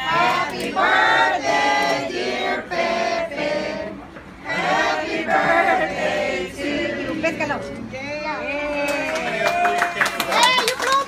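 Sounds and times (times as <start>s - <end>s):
group of people singing: 0.0s - 7.9s.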